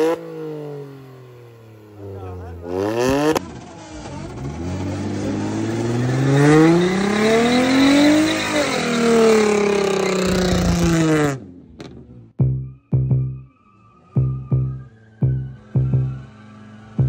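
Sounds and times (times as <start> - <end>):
car engine revving: 0.0 - 17.0
tyre and road noise: 0.0 - 17.0
music: 12.4 - 13.5, 14.2 - 16.3.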